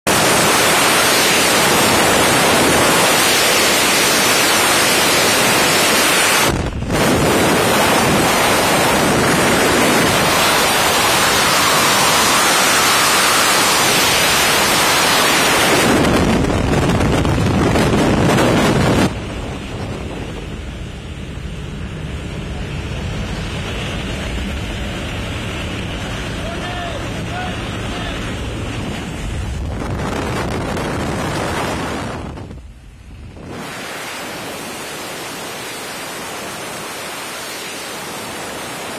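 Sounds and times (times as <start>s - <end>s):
strong wind on microphone: 0.1s - 38.9s.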